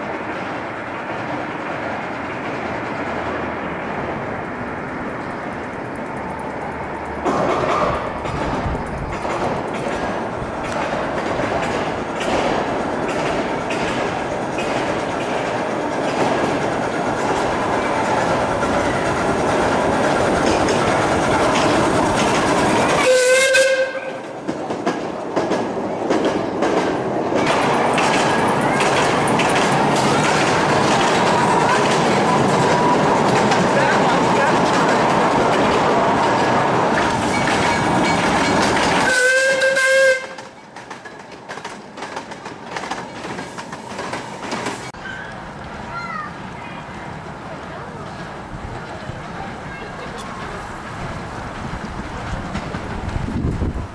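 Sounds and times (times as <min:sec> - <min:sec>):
miniature steam train running: 0:00.0 - 0:53.9
wheels clicking over rail joints: 0:00.0 - 0:53.9
steam whistle blast: 0:23.0 - 0:24.2, 0:39.1 - 0:40.4.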